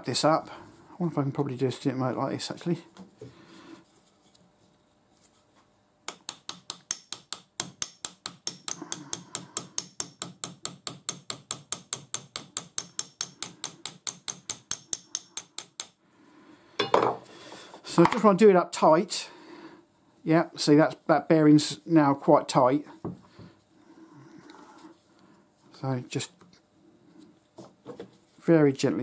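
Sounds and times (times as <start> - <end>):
hammer tapping steel punch: 6.1 - 16.0.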